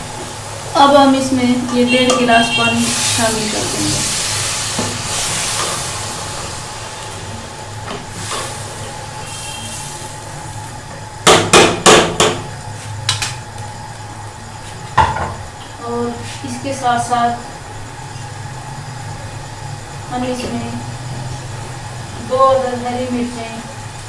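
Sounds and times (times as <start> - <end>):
water hissing in hot pot: 0.0 - 11.2
steady low hum: 0.0 - 24.0.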